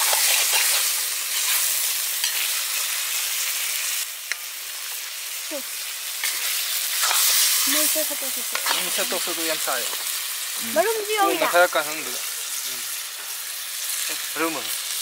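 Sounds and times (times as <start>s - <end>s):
metal spatula scraping a wok: 0.0s - 2.9s, 6.2s - 7.8s, 8.4s - 9.3s
chicken sizzling in oil: 0.0s - 15.0s.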